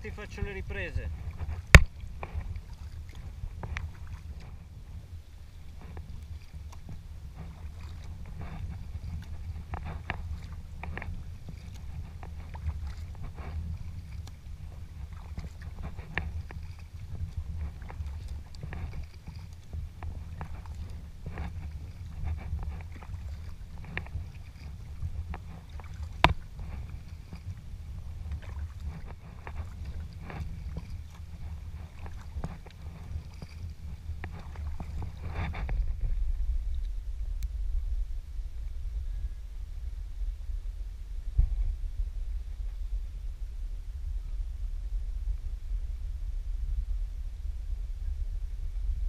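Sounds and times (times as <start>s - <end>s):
paddle blades splashing: 0.0s - 37.3s
steady low rumble: 0.0s - 49.0s.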